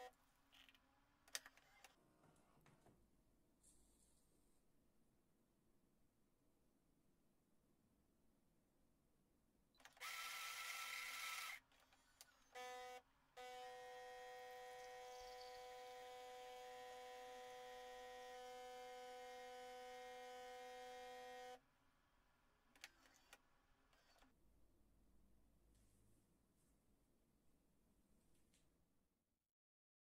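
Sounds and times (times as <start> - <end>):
coffee grinder whirring: 10.0 - 11.6, 12.6 - 21.6.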